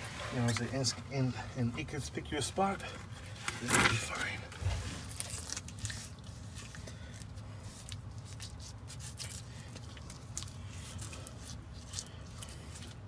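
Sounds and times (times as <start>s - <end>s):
steady low hum: 0.0s - 13.0s
wet cement squishing and scraping: 2.8s - 13.0s.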